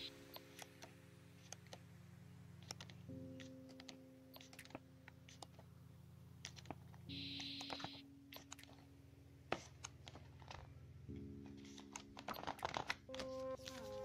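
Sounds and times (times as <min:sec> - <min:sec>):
soft background music: 0:00.0 - 0:14.0
photobook pages turning: 0:09.5 - 0:10.8, 0:11.5 - 0:14.0.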